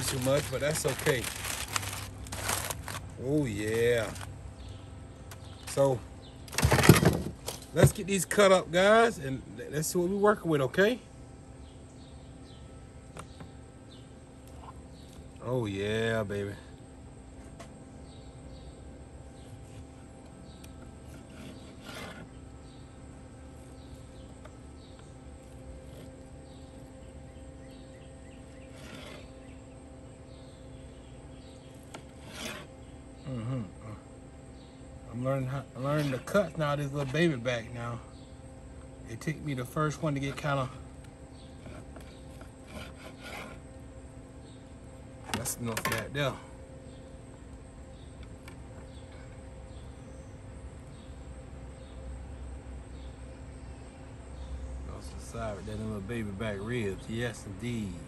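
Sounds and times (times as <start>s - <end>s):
steady hum: 0.0s - 58.0s
knife sawing through ribs: 21.0s - 22.4s, 32.1s - 32.8s, 42.5s - 43.6s
knife scraping board: 21.0s - 22.4s, 28.6s - 29.3s, 31.9s - 32.8s, 41.6s - 43.6s.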